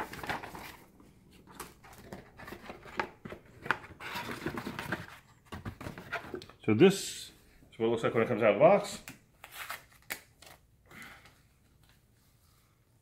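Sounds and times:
cardboard packaging handled: 0:00.0 - 0:06.4.

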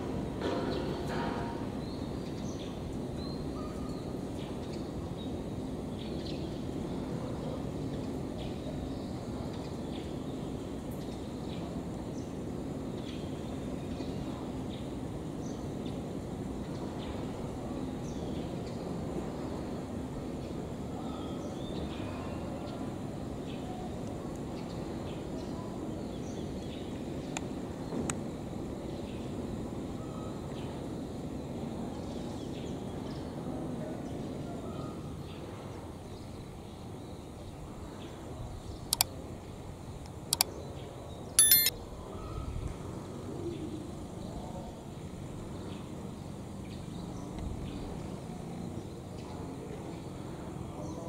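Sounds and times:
bird chirps: 0:41.4 - 0:41.7
sharp clicks: 0:41.4 - 0:41.7.

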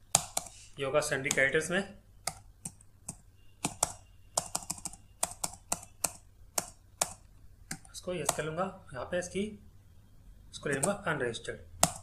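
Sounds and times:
computer keyboard typing: 0:00.0 - 0:01.6, 0:02.2 - 0:08.5, 0:10.6 - 0:11.1, 0:11.7 - 0:12.0.

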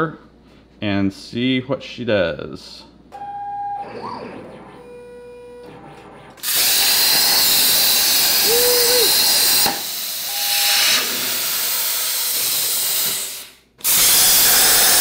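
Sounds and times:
plasma torch cutting steel hiss: 0:06.4 - 0:15.0.

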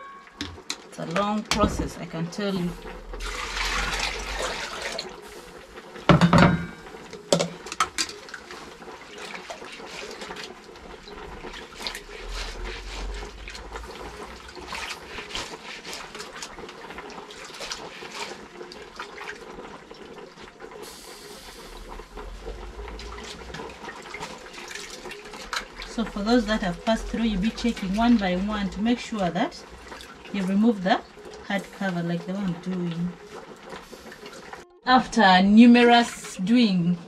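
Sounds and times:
hands scrubbing seeds in water: 0:08.2 - 0:19.5, 0:22.6 - 0:34.6.

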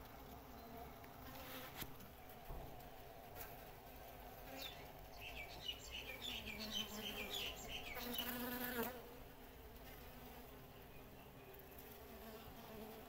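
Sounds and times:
bee colony humming: 0:00.0 - 0:13.0.

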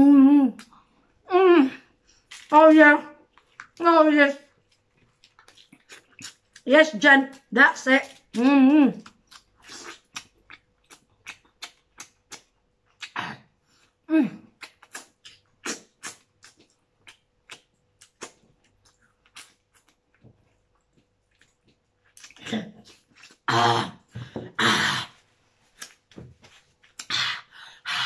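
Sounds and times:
wet lip smacks and sucking: 0:09.3 - 0:13.2, 0:14.6 - 0:20.0, 0:25.6 - 0:26.1.

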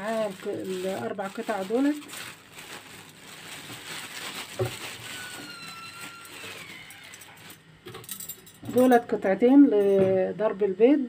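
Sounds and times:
plastic bag crinkling: 0:00.0 - 0:07.6
faint thin squeak: 0:05.1 - 0:07.4.

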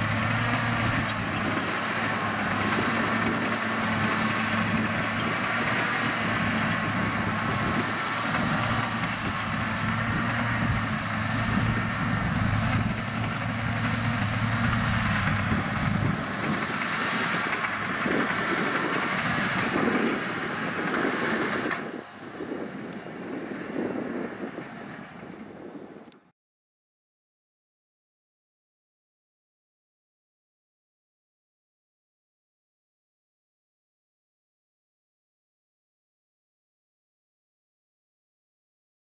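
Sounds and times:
diesel engine running: 0:00.0 - 0:26.1.

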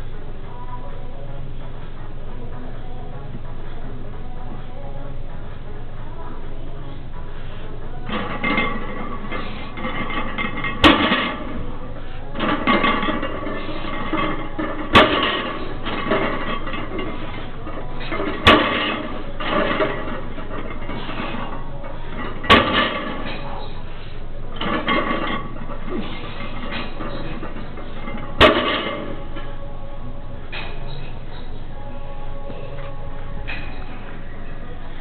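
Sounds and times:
weight plates clinking and ringing: 0:08.1 - 0:24.0.

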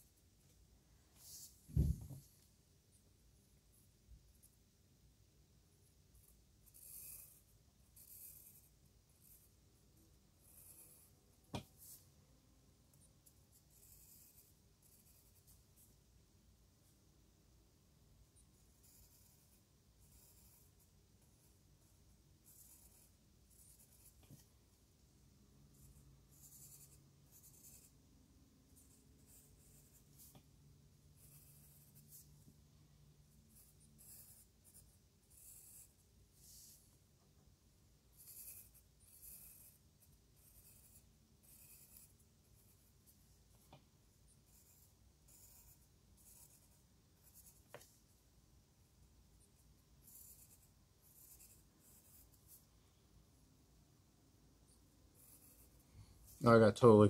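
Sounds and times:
pencil scratching on paper: 0:05.8 - 0:12.2, 0:12.9 - 0:16.1, 0:18.2 - 0:24.6, 0:25.7 - 0:32.6, 0:33.2 - 0:37.2, 0:38.0 - 0:48.2, 0:49.3 - 0:52.8, 0:54.6 - 0:56.5.

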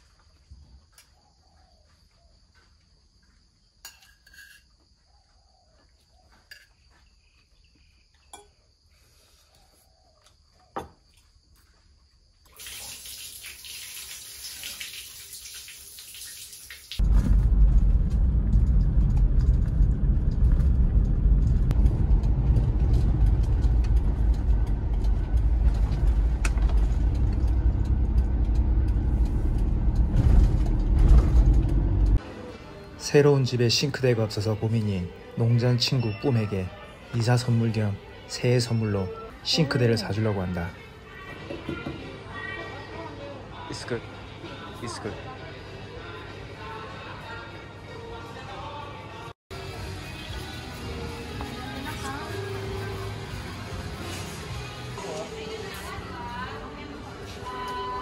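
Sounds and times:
spoons clinking on plates: 0:03.9 - 0:04.7
water pouring and splashing: 0:12.5 - 0:17.2
road noise inside a moving car: 0:17.0 - 0:32.2.

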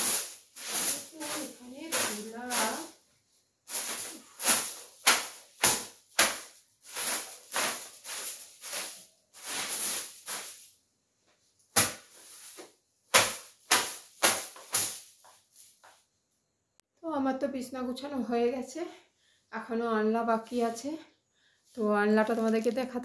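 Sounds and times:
hand broom swishing on fabric: 0:00.0 - 0:02.9, 0:03.7 - 0:10.7, 0:11.7 - 0:15.8.

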